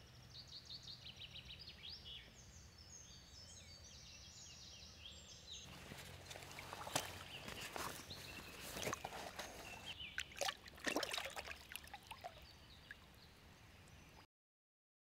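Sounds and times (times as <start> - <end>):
water splashing and sloshing: 5.7 - 13.2.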